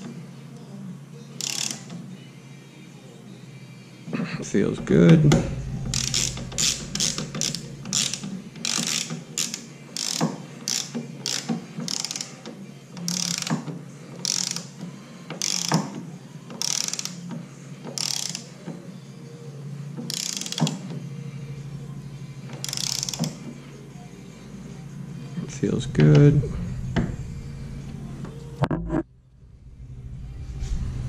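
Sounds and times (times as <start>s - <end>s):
socket ratchet clicking: 1.4s - 1.9s, 5.9s - 12.4s, 13.0s - 15.9s, 16.5s - 17.2s, 17.9s - 18.5s, 20.1s - 20.8s, 22.5s - 23.4s.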